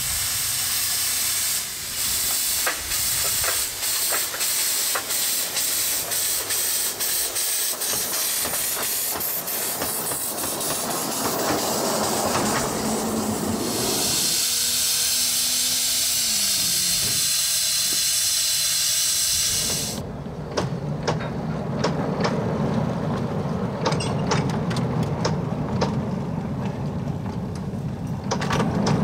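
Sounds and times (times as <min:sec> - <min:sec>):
steam hissing: 0:00.0 - 0:20.0
sharp clicks and knocks: 0:02.3 - 0:06.2, 0:20.5 - 0:26.0, 0:26.6 - 0:29.0.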